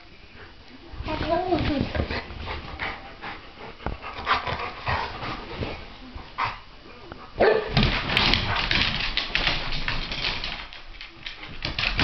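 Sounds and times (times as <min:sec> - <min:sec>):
dogs scuffling: 0:01.0 - 0:06.6, 0:07.3 - 0:12.0
paws scrabbling on hardwood floor: 0:01.0 - 0:06.6, 0:07.2 - 0:12.0
dogs barking: 0:07.4 - 0:07.8.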